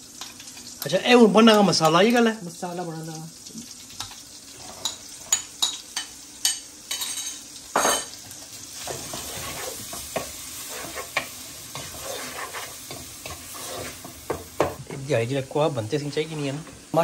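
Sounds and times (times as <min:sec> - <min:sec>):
onion sizzling: 0:00.0 - 0:17.0
spatula scraping pot: 0:08.8 - 0:14.8.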